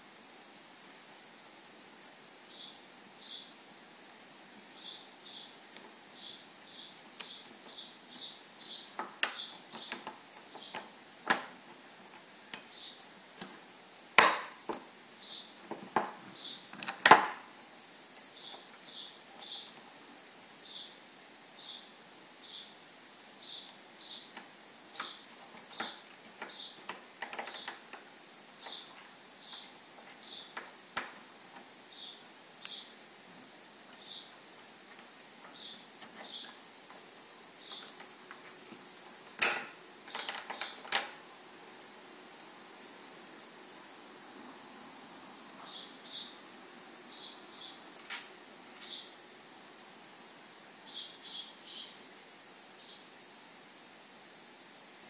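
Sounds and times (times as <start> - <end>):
metal clicks and snaps: 9.0 - 12.7, 14.2 - 14.8, 15.7 - 17.4, 24.4 - 31.7, 39.4 - 41.2, 48.0 - 48.3.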